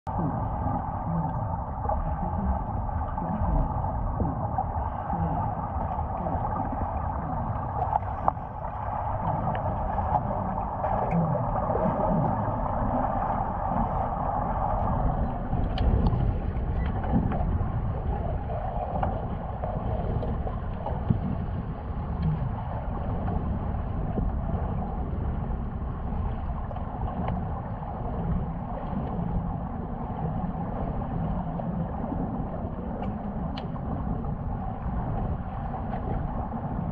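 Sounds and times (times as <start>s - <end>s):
underwater rumble and hiss: 0.1s - 36.9s
faint clicks: 33.0s - 33.8s.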